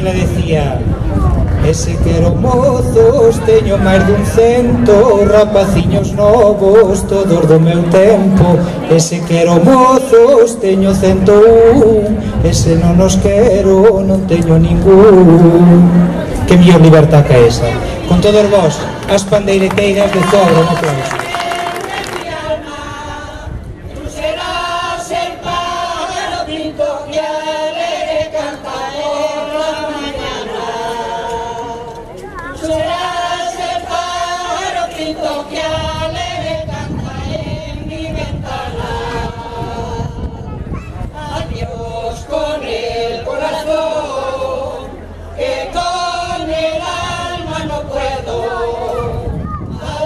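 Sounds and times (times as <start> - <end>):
women singing together: 21.0 - 50.0.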